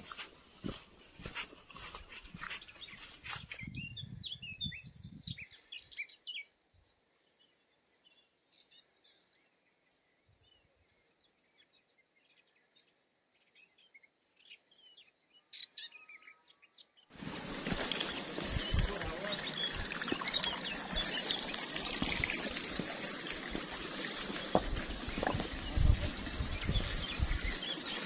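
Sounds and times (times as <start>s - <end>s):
birds chirping: 0.0s - 28.0s.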